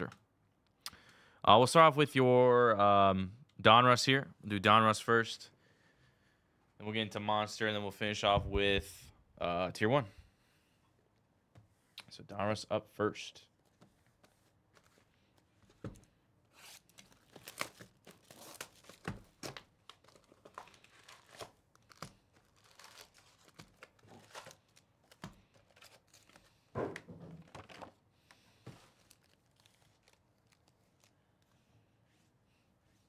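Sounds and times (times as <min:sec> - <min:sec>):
card packs rustling and crinkling: 0:13.6 - 0:26.7, 0:27.3 - 0:31.6.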